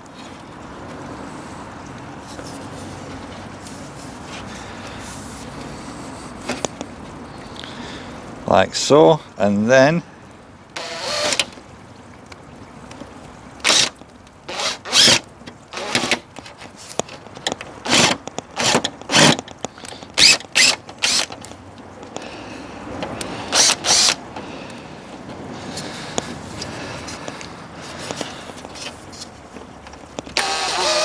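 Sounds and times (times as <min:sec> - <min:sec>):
cordless drill driving a screw: 0:10.8 - 0:11.5, 0:13.6 - 0:13.9, 0:14.5 - 0:15.2, 0:15.8 - 0:16.2, 0:17.9 - 0:19.4, 0:20.2 - 0:21.3, 0:23.5 - 0:24.2, 0:30.4 - 0:31.0.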